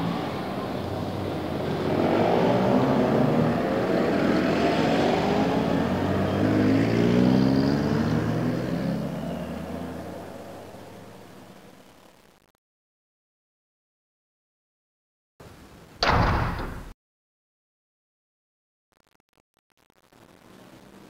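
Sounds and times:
motor engine droning past: 0.0s - 11.1s.

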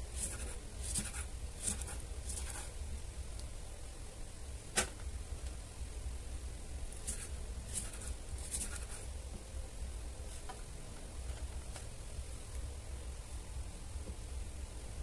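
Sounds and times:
knife slicing tomato: 0.0s - 2.8s, 7.0s - 9.1s.

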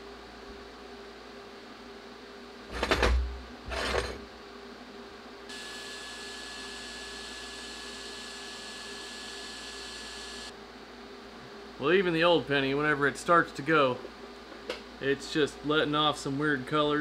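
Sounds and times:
welding arc hissing and whining: 5.5s - 10.5s.

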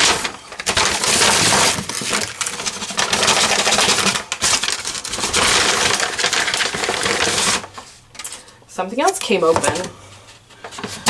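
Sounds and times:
paper bag crinkling: 0.0s - 8.4s
plastic packets clattering: 0.0s - 9.9s.

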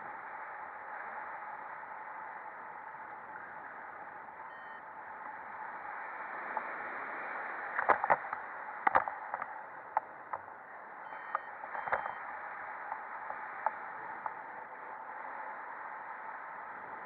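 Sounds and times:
short high beeps: 11.1s - 12.2s.

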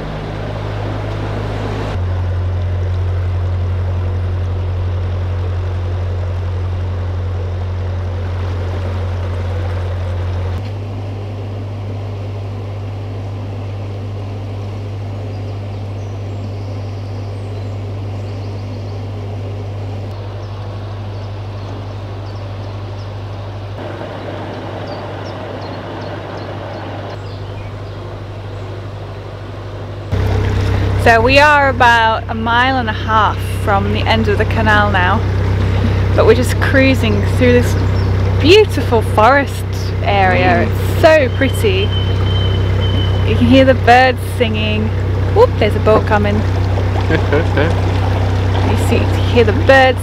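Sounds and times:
boat engine humming: 0.0s - 50.0s
faint birdsong: 14.7s - 30.6s, 37.0s - 38.6s, 39.9s - 47.1s.

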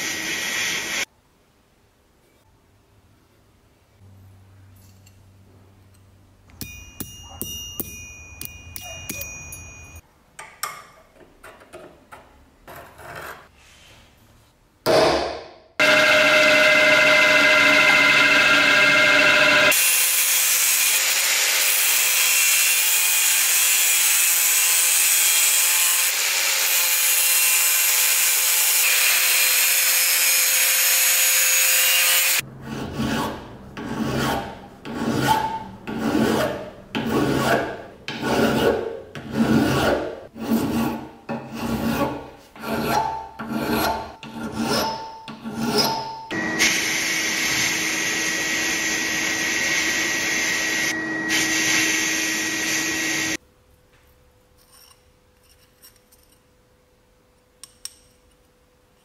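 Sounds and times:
angle grinder cutting metal: 15.8s - 32.5s, 45.7s - 53.4s
file rasping across metal: 32.6s - 46.1s.

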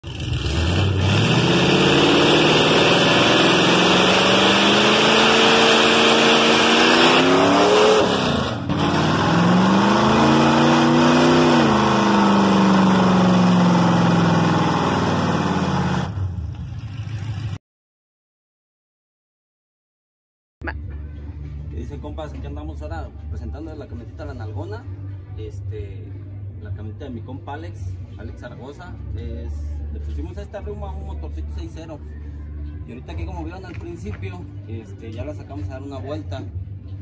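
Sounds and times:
engine revving hard: 0.0s - 17.6s.

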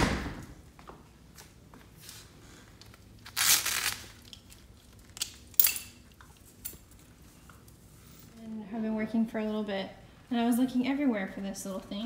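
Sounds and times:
fabric harness ripping rasps: 3.2s - 5.2s.

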